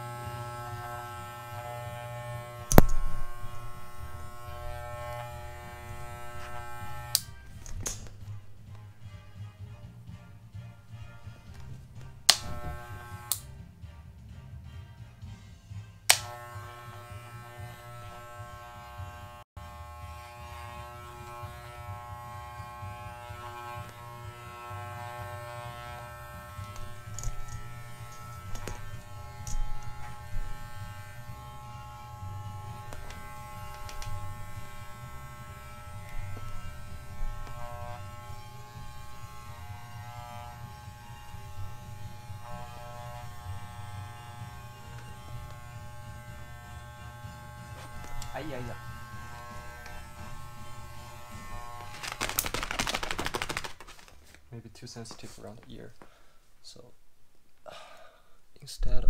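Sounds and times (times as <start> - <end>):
electric dog clippers buzzing: 0.0 - 8.6, 11.1 - 13.6, 16.1 - 53.6
clipper blades scratching through coat: 0.0 - 8.9, 20.0 - 54.4.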